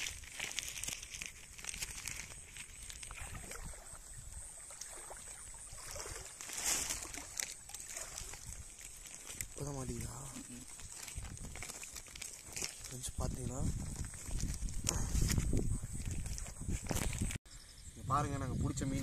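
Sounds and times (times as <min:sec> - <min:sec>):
plastic sack rustling: 0:00.0 - 0:03.2, 0:06.4 - 0:17.4
water sloshing and dripping: 0:00.1 - 0:10.1.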